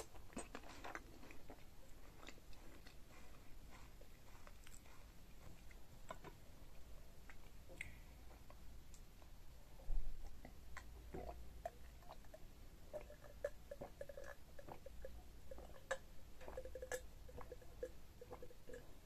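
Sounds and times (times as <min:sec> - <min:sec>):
person gulping drink: 0:10.0 - 0:19.0
wet mouth clicks: 0:10.2 - 0:18.9.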